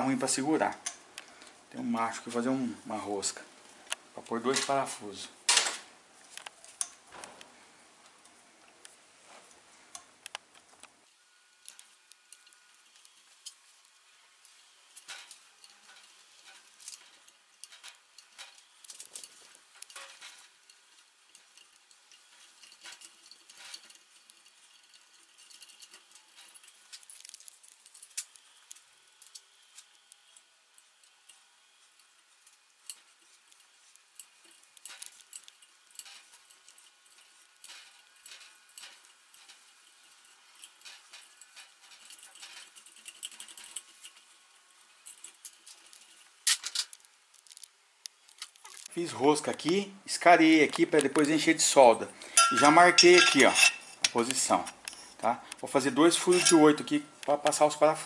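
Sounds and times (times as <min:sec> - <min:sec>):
metal clatter: 0:11.6 - 0:48.9, 0:56.1 - 0:56.8.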